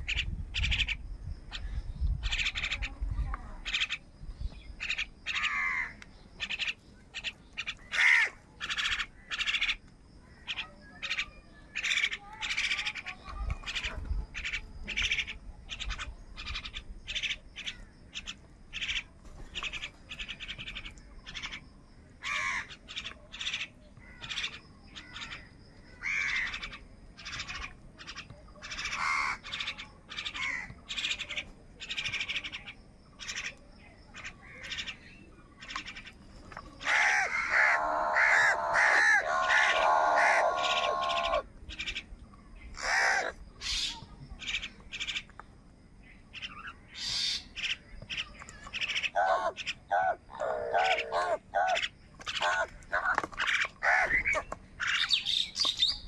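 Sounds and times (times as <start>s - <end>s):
crows cawing: 4.8s - 9.8s, 22.2s - 22.7s, 25.1s - 27.7s, 28.7s - 29.7s, 30.4s - 30.8s, 36.8s - 41.5s, 42.8s - 43.4s, 49.0s - 55.1s.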